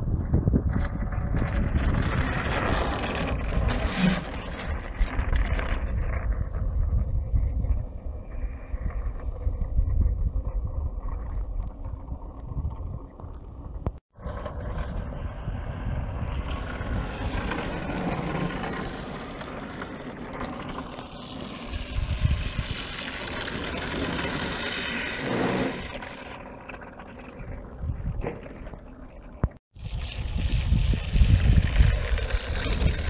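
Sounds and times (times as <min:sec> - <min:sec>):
wind buffeting microphone: 0:00.0 - 0:19.0, 0:21.7 - 0:22.9, 0:27.4 - 0:28.8, 0:29.4 - 0:33.0
board runners scraping on ice: 0:00.2 - 0:33.0.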